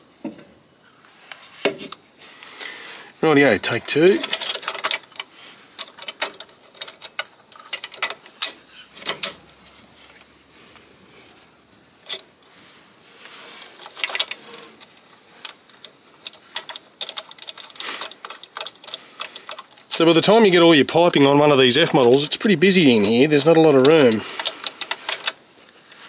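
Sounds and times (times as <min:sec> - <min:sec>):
metallic clicks and clinks: 0:03.7 - 0:09.7, 0:13.7 - 0:20.4, 0:21.7 - 0:25.4
scraping rub: 0:12.5 - 0:15.6.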